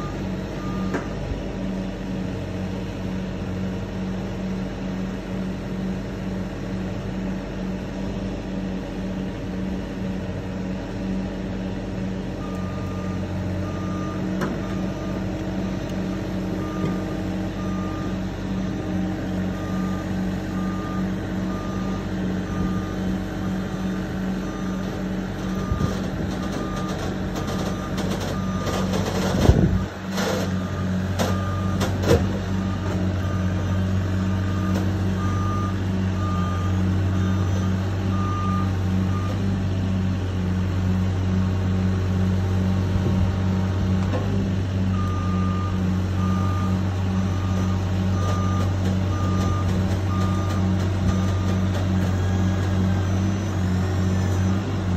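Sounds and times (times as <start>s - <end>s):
reversing alarm beeping: 0.0s - 1.1s, 12.4s - 39.6s, 44.8s - 54.9s
excavator engine running: 0.0s - 54.9s.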